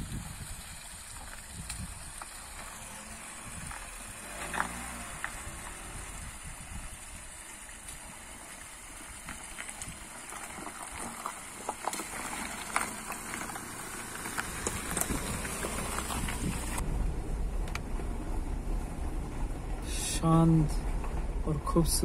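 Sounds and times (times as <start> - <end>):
low engine rumble: 0.0 - 22.0
tyres crunching on gravel: 0.1 - 16.9.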